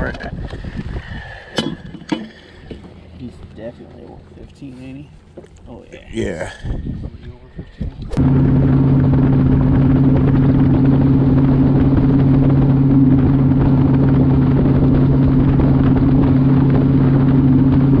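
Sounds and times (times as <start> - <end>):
rush of wind and water: 0.0 - 1.9, 6.2 - 18.0
outboard motor droning: 0.0 - 18.0.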